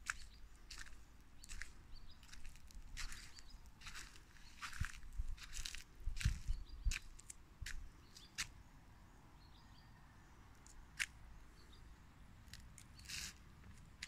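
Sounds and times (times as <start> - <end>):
faint bird chirps: 0.0 - 5.6
crunching footsteps: 0.0 - 8.5, 12.5 - 14.0.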